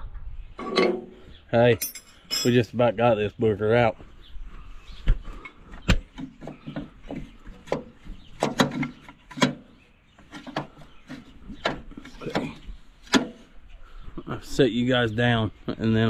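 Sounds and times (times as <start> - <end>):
metal clanks and knocks: 0.1 - 2.7, 5.8 - 13.5.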